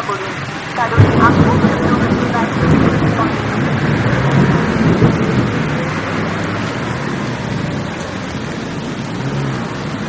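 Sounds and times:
metro train rushing and rumbling: 0.6 - 8.1.

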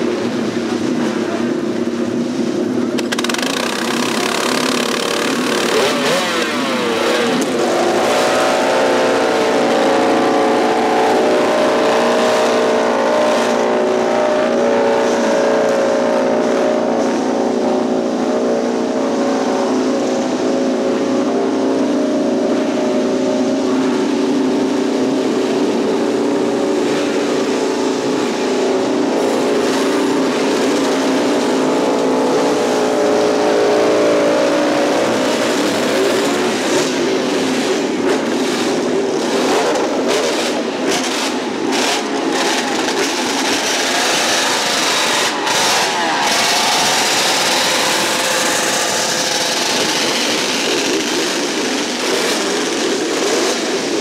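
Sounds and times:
motorcycle engine idling fast: 0.1 - 7.7, 35.5 - 54.0.

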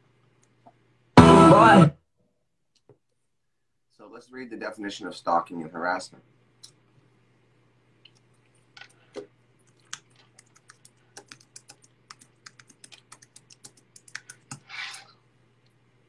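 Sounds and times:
keyboard typing: 9.7 - 15.0.

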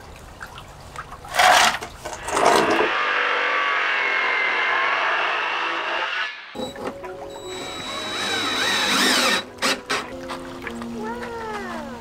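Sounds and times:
circular saw cutting wood: 1.4 - 6.7, 7.3 - 10.2.

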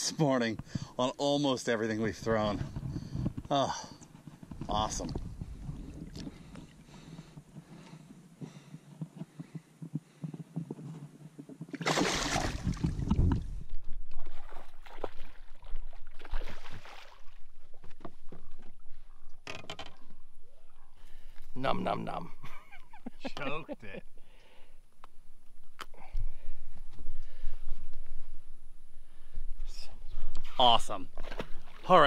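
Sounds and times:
water splashing and sloshing: 11.7 - 20.4, 30.8 - 32.0
fish splashing into water: 11.8 - 13.0, 14.2 - 17.4.

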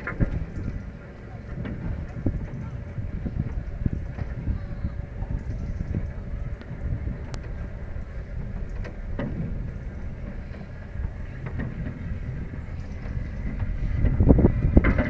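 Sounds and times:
cable car rumbling: 0.0 - 15.0
faint hum: 0.0 - 15.0
light clicks: 5.4 - 10.7.

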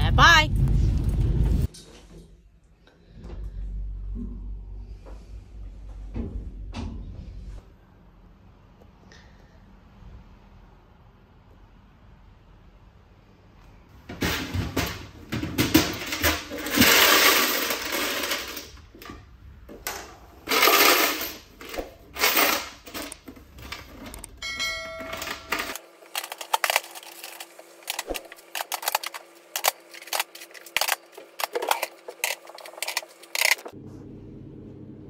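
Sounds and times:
cans and fittings clattering: 14.1 - 19.2, 19.8 - 33.7
coins clinking in plastic box: 15.6 - 18.8, 20.4 - 33.7.

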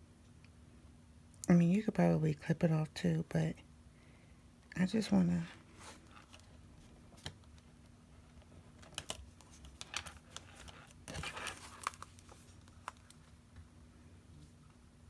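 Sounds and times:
paper rustling: 8.4 - 13.4.

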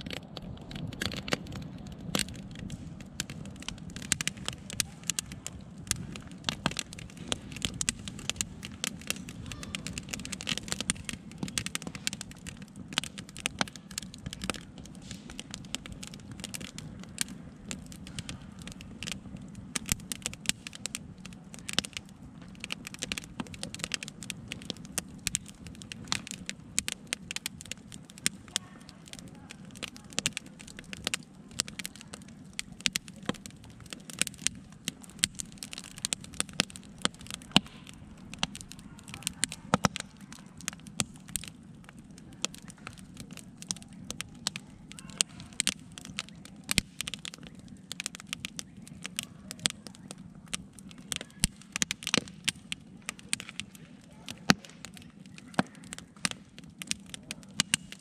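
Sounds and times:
campfire crackling and popping: 0.0 - 58.0.

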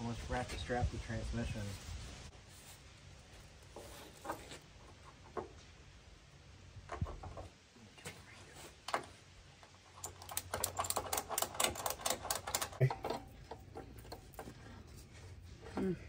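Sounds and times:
strap hooks clinking and rustling: 9.9 - 15.3.

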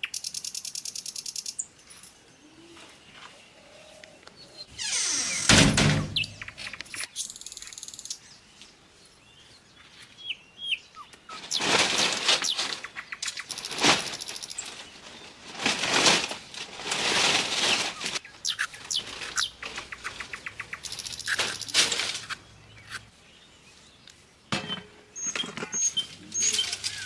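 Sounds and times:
birds chirping: 0.0 - 15.5, 17.6 - 27.0
quick clicks: 19.2 - 23.0.

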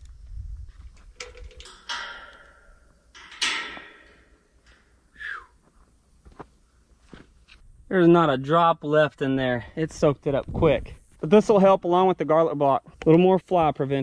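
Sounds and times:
steel gate clanking and rattling: 1.1 - 5.1.

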